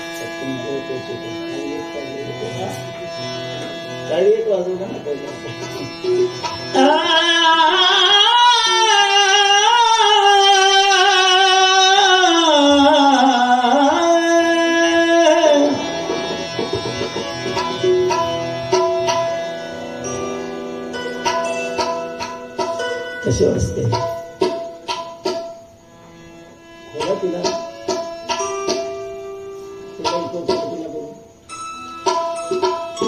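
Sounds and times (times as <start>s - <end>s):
instrumental accompaniment: 0.0s - 33.0s
man singing: 6.7s - 16.1s
drum strokes: 15.8s - 19.4s, 21.2s - 25.7s, 32.0s - 33.0s.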